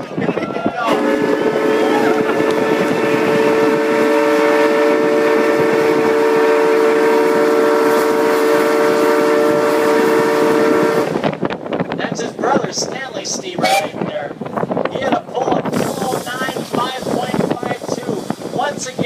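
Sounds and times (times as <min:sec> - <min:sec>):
steam whistle blast: 0:00.9 - 0:11.2, 0:13.6 - 0:14.0.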